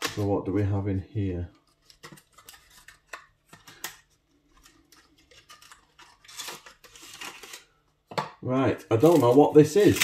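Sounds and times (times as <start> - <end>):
cardboard clicks and taps: 8.1 - 8.4.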